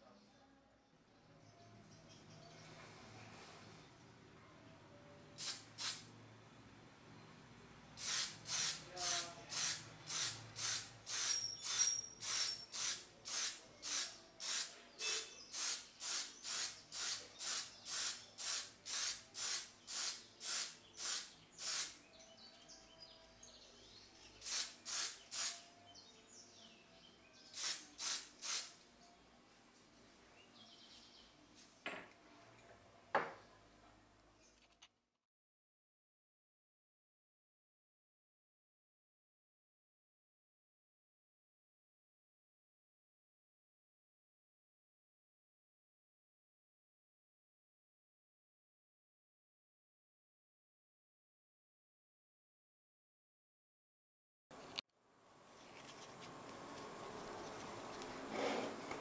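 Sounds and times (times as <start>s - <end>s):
spray paint hissing puffs: 5.4s - 6.1s, 8.0s - 22.0s, 24.4s - 25.7s, 27.5s - 28.8s.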